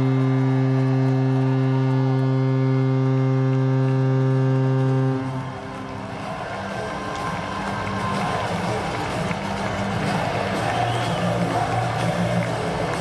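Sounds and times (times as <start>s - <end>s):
goal horn low note: 0.0s - 6.3s
crowd cheering: 0.0s - 13.0s.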